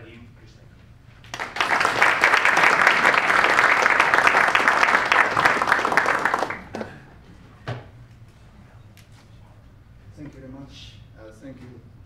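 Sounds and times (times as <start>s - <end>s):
audience applauding: 1.2s - 7.0s.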